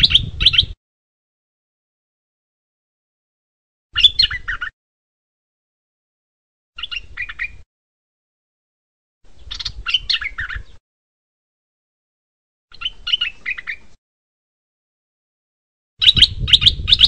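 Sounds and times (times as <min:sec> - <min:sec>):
bird chirping song: 0:00.0 - 0:00.8, 0:04.0 - 0:04.8, 0:06.8 - 0:07.7, 0:09.3 - 0:10.8, 0:12.7 - 0:14.0, 0:16.0 - 0:17.0.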